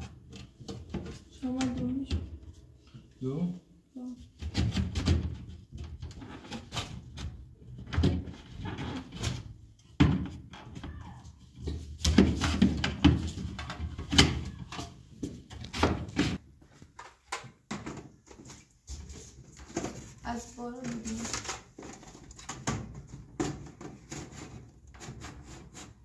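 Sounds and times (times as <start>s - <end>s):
plastic clacking and clattering: 20.8s - 25.4s.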